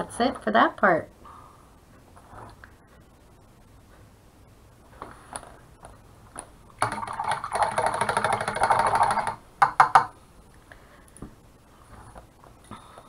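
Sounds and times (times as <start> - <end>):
paintbrush rattling in water cup: 6.8 - 9.4
brush tapping on cup: 7.8 - 10.2.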